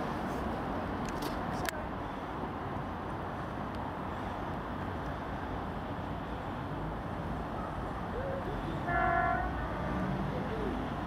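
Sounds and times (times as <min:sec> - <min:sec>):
train horn: 0:08.8 - 0:10.1.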